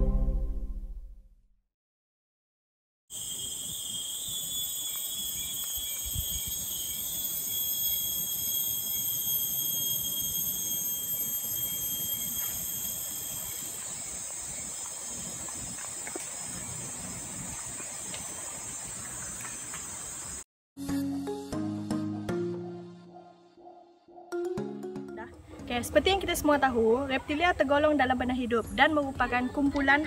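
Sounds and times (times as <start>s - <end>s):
insect chorus: 3.1s - 20.4s.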